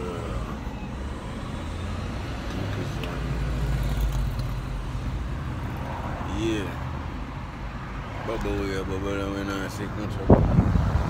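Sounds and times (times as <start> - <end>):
car interior rumble: 8.3 - 11.0.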